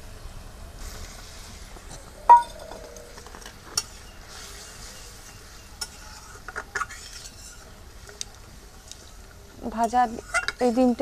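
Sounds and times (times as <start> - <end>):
metal clank on pan: 2.3 - 2.8
metal spatula stirring in pan: 3.8 - 8.2, 8.9 - 11.0.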